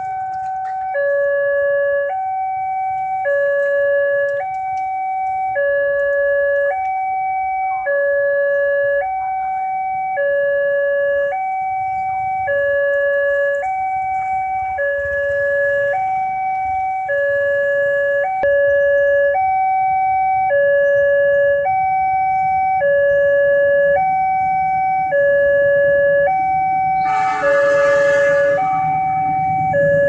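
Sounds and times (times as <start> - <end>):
two-tone level crossing alarm: 0.0 - 30.0.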